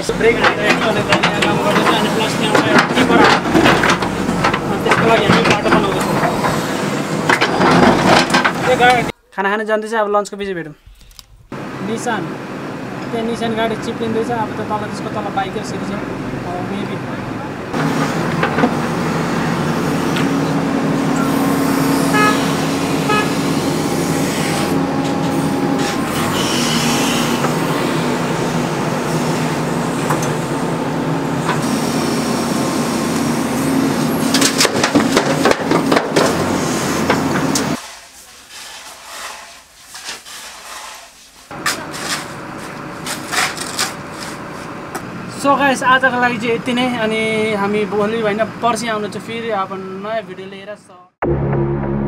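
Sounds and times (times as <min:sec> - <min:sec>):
diesel engine running under load: 0:00.0 - 0:09.1, 0:11.6 - 0:37.8
metal clanks: 0:00.2 - 0:06.6, 0:07.2 - 0:09.1.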